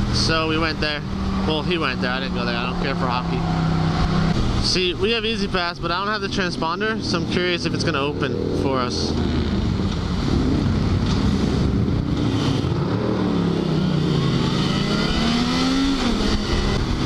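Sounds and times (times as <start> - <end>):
motorcycle engine accelerating: 0.0 - 17.0
wind rushing over microphone: 7.9 - 17.0.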